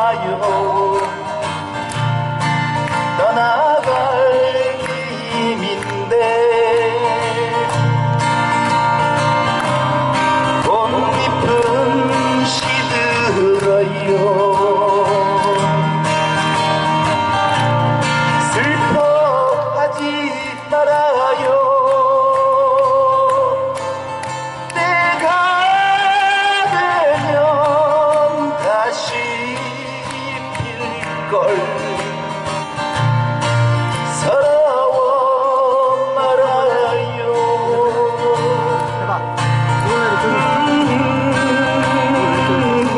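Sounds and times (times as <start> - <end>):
person singing: 0.0 - 1.4, 10.2 - 15.9, 34.0 - 42.9
acoustic guitar music: 0.0 - 42.9.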